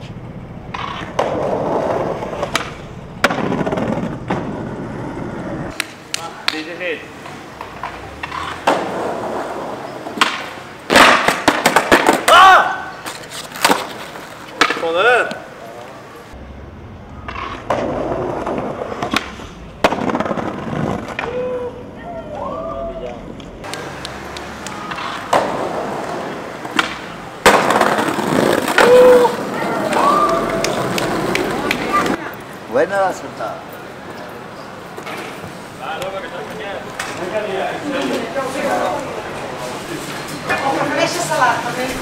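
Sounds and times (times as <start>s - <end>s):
skateboard wheels rolling on stone: 0.6s - 15.3s, 17.1s - 21.5s, 23.3s - 32.3s
skateboard clack: 0.7s - 15.4s, 17.1s - 21.6s, 23.0s - 32.2s, 36.8s - 38.8s
sharp crack: 10.2s - 14.9s, 23.6s - 29.3s.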